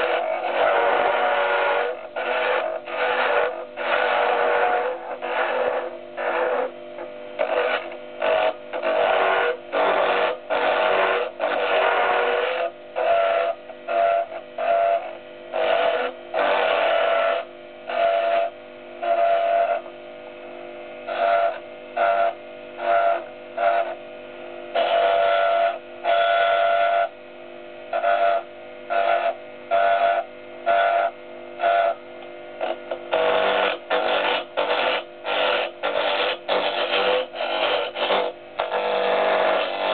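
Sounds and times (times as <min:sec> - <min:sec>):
wood lathe whining: 0:00.0 - 0:06.7, 0:07.4 - 0:19.9, 0:24.8 - 0:27.1, 0:27.9 - 0:32.0, 0:32.6 - 0:39.9
turning tool cutting wood: 0:15.6 - 0:18.5, 0:32.6 - 0:39.9.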